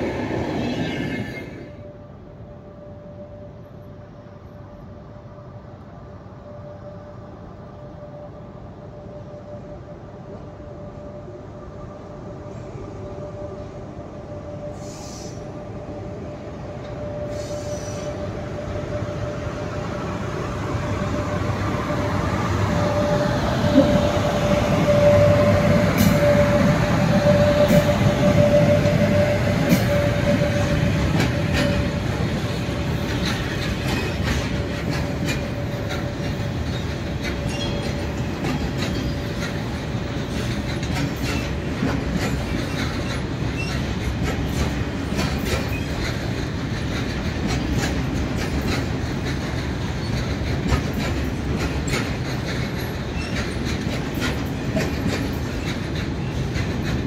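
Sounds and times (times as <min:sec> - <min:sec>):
freight train rumbling: 0:00.0 - 0:57.0
wheels clicking over rail joints: 0:31.0 - 0:57.0.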